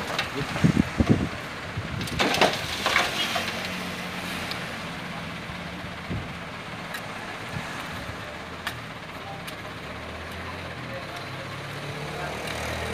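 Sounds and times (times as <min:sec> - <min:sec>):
diesel engine idling: 0:00.0 - 0:12.9
hoe scraping soil and stones: 0:02.1 - 0:04.7.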